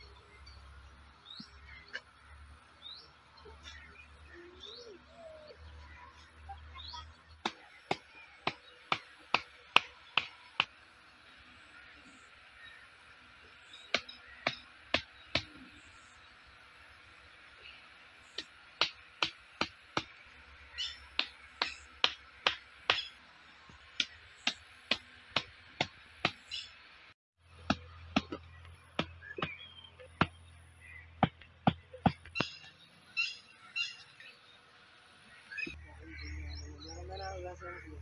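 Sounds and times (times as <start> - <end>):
hammer knocking wooden stakes: 7.4 - 10.7, 13.9 - 15.7, 18.3 - 20.2, 21.1 - 23.2, 24.0 - 26.5, 27.5 - 30.5, 31.2 - 32.7.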